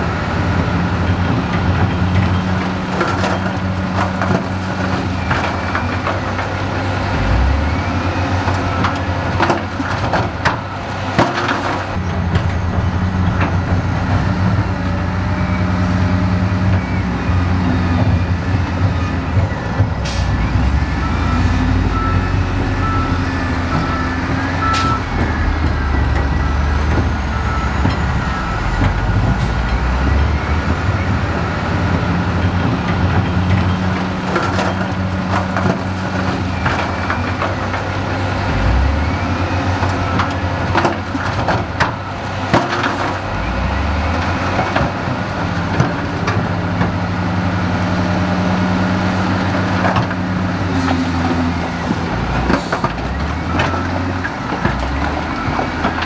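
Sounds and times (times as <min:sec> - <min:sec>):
diesel machine engine running: 0:00.0 - 0:56.0
knocks and clanks: 0:17.9 - 0:37.8
repeating beeps: 0:21.0 - 0:30.4.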